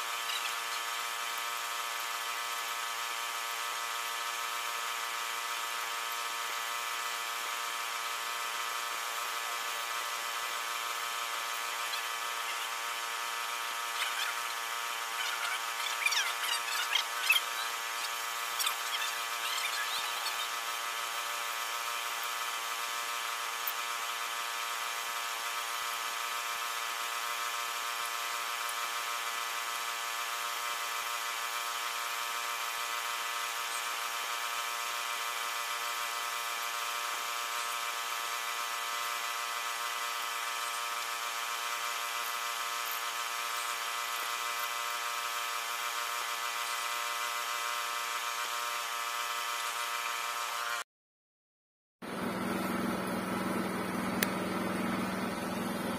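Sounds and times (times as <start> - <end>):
air compressor droning: 52.0 - 55.9.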